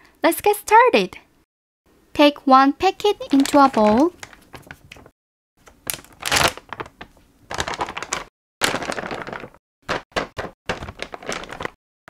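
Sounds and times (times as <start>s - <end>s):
packet crinkling and rustling: 3.1s - 11.8s.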